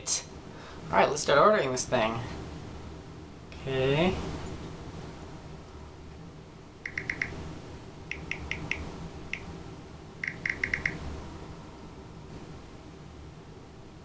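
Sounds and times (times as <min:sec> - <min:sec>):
phone keyboard tap blips: 0:06.9 - 0:07.4, 0:08.1 - 0:08.8, 0:10.2 - 0:11.0.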